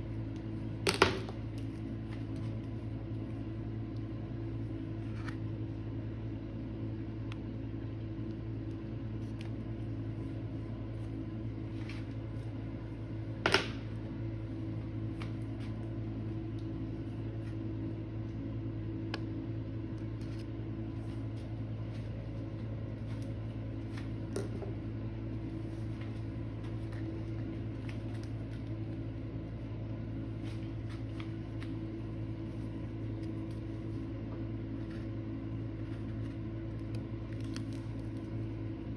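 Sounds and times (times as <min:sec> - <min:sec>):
low mechanical hum: 0:00.0 - 0:38.9.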